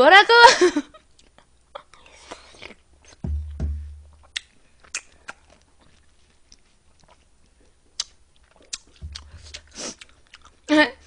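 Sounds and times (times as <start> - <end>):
faint chewing: 1.1 - 3.2, 4.2 - 10.7.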